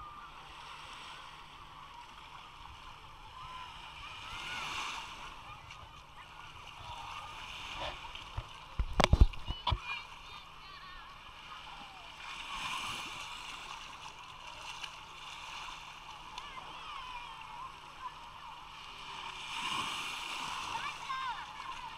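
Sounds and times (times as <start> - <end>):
small waves lapping shore: 0.0 - 21.9
distant voices and shouts: 1.5 - 8.4, 9.4 - 12.8, 15.6 - 19.3, 20.4 - 21.9.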